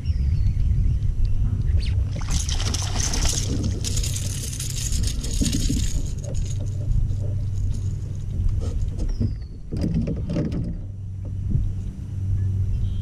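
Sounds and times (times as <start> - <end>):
wind rumble on microphone: 0.0 - 13.0
fish splashing at water surface: 2.1 - 4.3.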